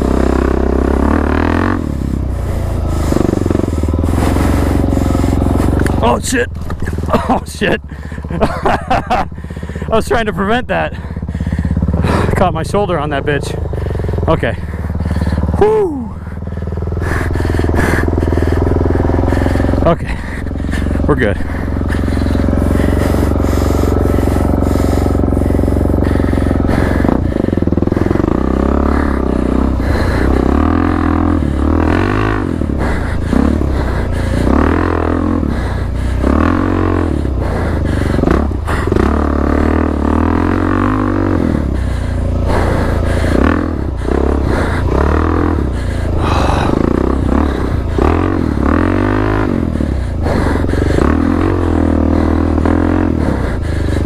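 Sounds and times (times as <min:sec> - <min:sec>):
dirt bike engine revving: 0:00.0 - 0:54.0.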